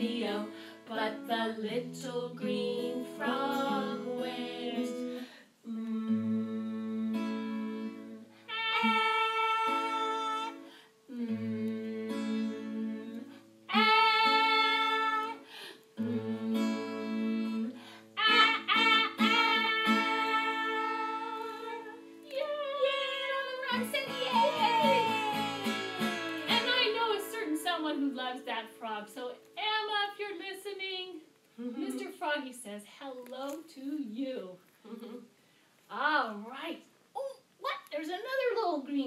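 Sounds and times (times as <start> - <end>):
women singing: 0.0 - 28.1
acoustic guitar strummed: 6.1 - 22.2, 23.5 - 29.0.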